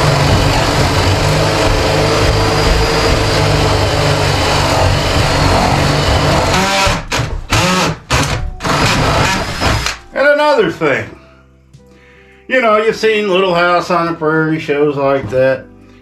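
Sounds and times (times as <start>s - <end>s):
cordless drill boring into wood: 0.0s - 10.0s.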